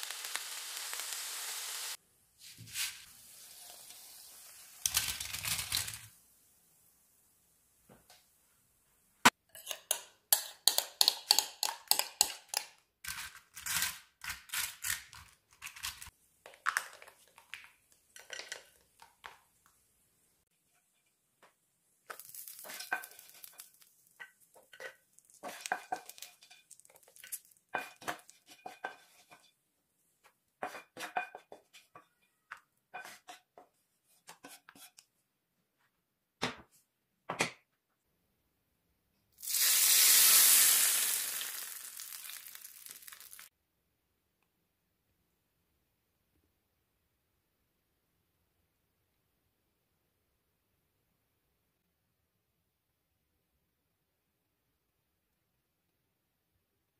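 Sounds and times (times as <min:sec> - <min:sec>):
food pieces dropping: 0:04.8 - 0:06.1, 0:22.0 - 0:28.2, 0:39.4 - 0:43.5
spoon scraping glass dish: 0:09.5 - 0:10.5.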